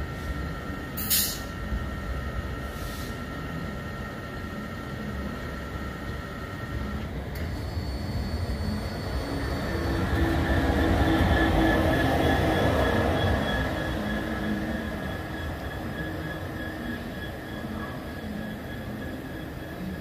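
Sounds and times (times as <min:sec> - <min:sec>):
diesel locomotive passing: 0:05.2 - 0:20.0.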